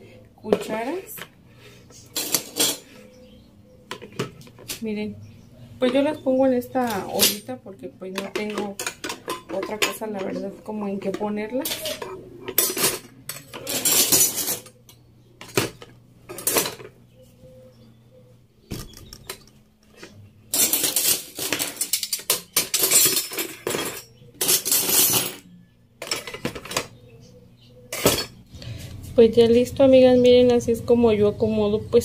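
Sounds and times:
kitchen utensils clattering: 0.4 - 3.2, 3.9 - 4.9, 5.8 - 17.0, 18.8 - 27.0, 27.9 - 28.4.

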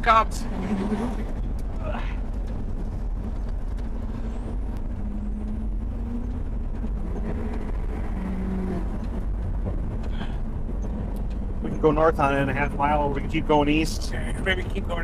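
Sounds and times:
truck engine and road noise: 0.0 - 15.0.

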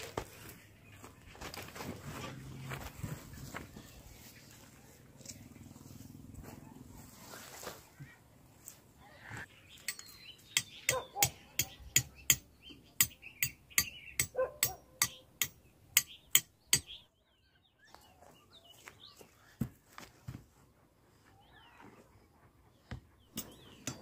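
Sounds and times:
birds chirping faintly: 7.8 - 20.0, 20.7 - 24.0.

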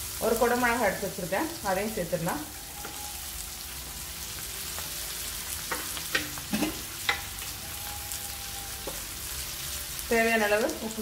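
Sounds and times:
vegetables sizzling in oil: 0.0 - 11.0
spatula tapping pan: 5.7 - 6.4.

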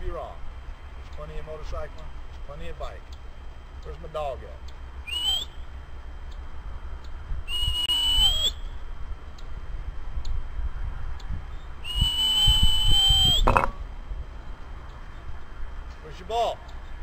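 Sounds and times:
high dog whistle: 5.1 - 5.6, 7.5 - 8.7, 11.8 - 13.5.

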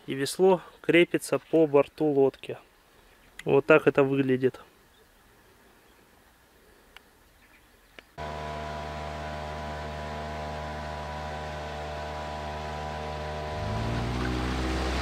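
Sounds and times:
outboard motor running: 8.2 - 15.0.

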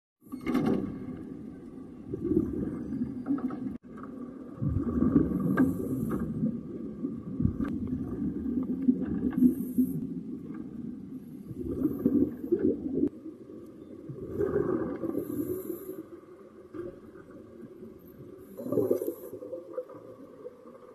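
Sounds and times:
exhaled bubbles rumbling: 0.9 - 15.8, 16.9 - 20.9
regulator hiss on inhale: 9.4 - 10.1, 15.1 - 16.2.

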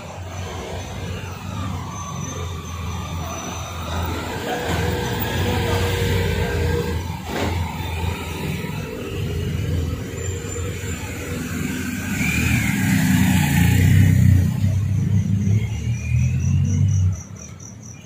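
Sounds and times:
cars and motorcycles driving past: 0.0 - 18.0.

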